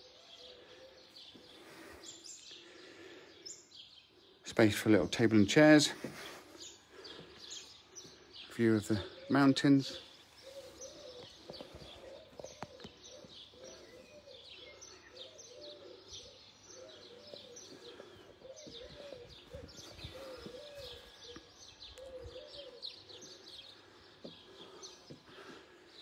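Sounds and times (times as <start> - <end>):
small birds chirping: 0.0 - 26.0
dove cooing: 10.0 - 25.6.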